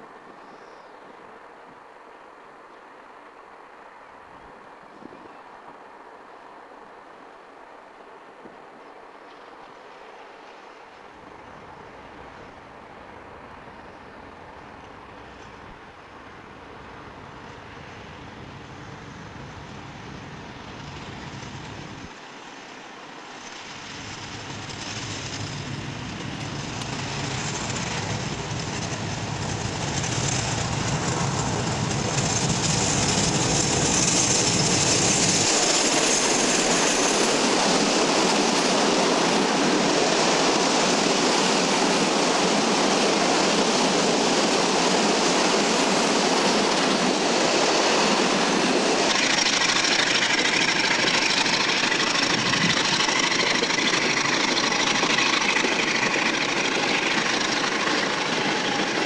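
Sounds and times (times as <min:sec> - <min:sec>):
diesel locomotive engine: 0:00.0 - 0:59.0
wagon wheels rolling on rails: 0:48.7 - 0:59.0.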